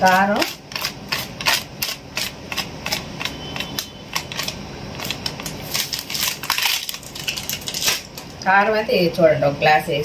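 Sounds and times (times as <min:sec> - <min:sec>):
plastic packet crinkling: 0:04.2 - 0:08.4.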